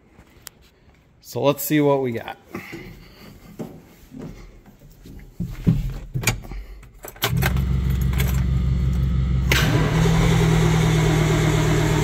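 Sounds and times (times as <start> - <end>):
starter cranking diesel engine: 7.2 - 12.0.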